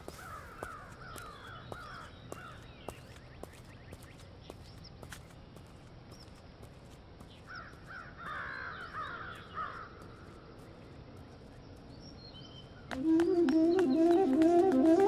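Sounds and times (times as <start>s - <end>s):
faint outdoor background noise: 0.0s - 15.0s
crows cawing: 0.1s - 2.6s, 7.5s - 10.2s.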